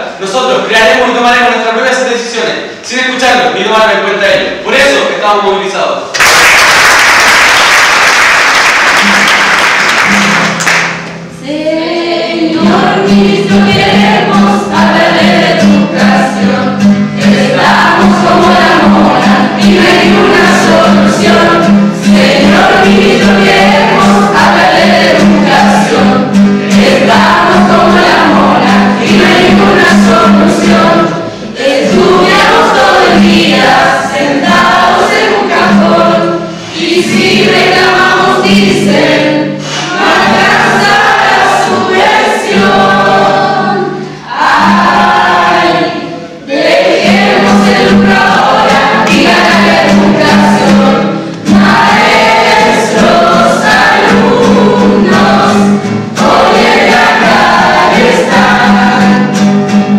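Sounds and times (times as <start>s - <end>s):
audience applause: 6.1s - 11.1s
group singing: 11.3s - 59.8s.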